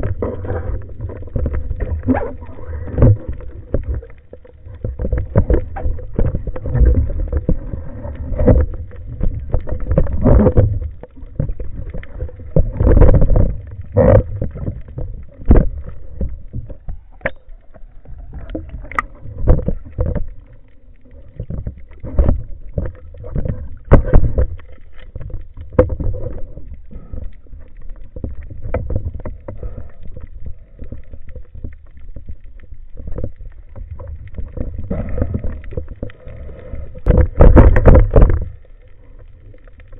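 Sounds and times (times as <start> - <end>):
underwater rumble of moving water: 0.0 - 39.9.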